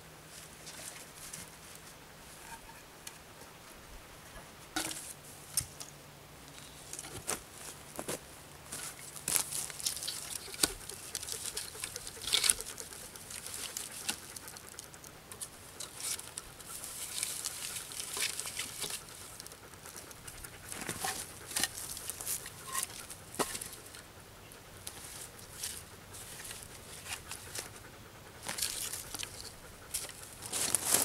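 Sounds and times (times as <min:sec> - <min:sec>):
footsteps on twigs: 0:06.5 - 0:14.7, 0:15.8 - 0:24.0, 0:28.4 - 0:31.0.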